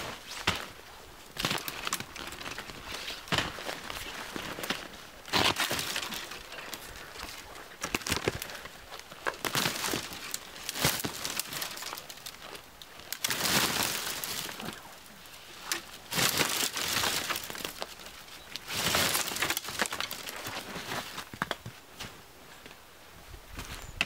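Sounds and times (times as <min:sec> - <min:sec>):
dry branches crackling and snapping: 0:00.0 - 0:21.7.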